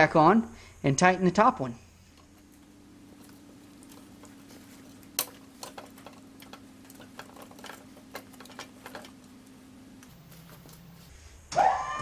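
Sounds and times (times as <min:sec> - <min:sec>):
steady low hum: 0:01.8 - 0:11.3
metal knocks and clicks: 0:02.1 - 0:11.0.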